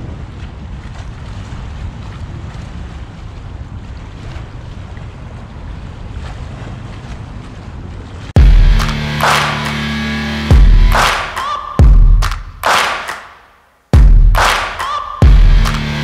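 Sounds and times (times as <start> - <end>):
small waves lapping on shore: 0.0 - 8.4
wind buffeting microphone: 0.0 - 8.4.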